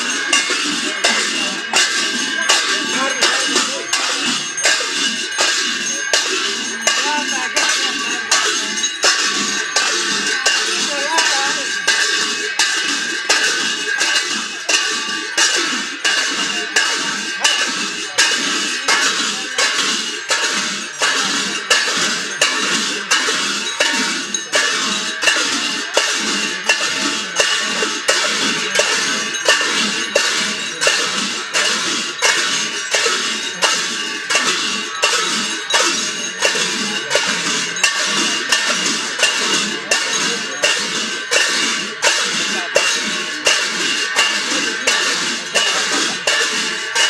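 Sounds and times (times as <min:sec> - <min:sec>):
drumming: 0:00.0 - 0:47.0
hand cymbals clashing: 0:00.0 - 0:47.0.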